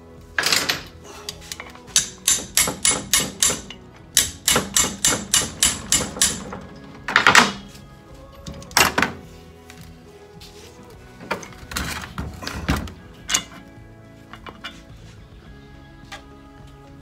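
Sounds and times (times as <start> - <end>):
hammer tapping on metal: 1.9 - 6.6.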